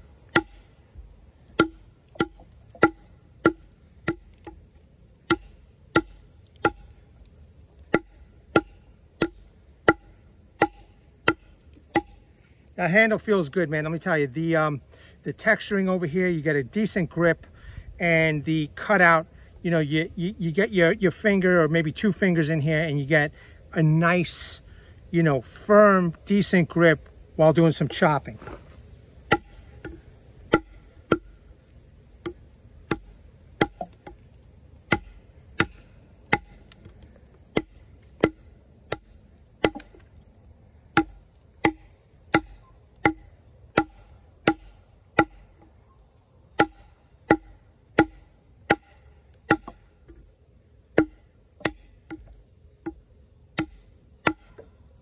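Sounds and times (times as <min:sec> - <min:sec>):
knife chopping into wood: 0:00.3 - 0:00.6, 0:01.6 - 0:04.6, 0:05.3 - 0:06.9, 0:07.9 - 0:12.2, 0:29.3 - 0:31.3, 0:32.2 - 0:34.2, 0:34.9 - 0:36.6, 0:37.5 - 0:40.0, 0:41.0 - 0:45.7, 0:46.6 - 0:50.2, 0:51.0 - 0:53.0, 0:53.6 - 0:54.6.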